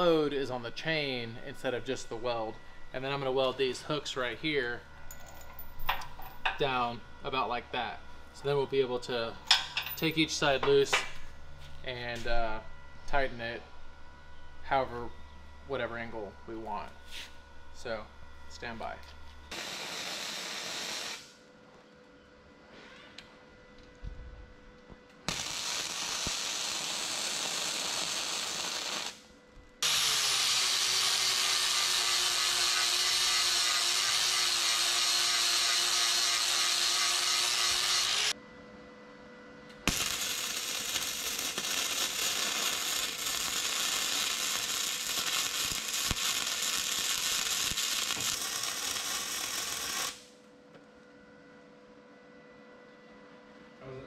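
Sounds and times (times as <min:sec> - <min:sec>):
arc welder crackling and hissing: 0:00.0 - 0:04.9, 0:05.8 - 0:13.6, 0:15.7 - 0:21.5, 0:25.1 - 0:38.4, 0:39.8 - 0:50.4.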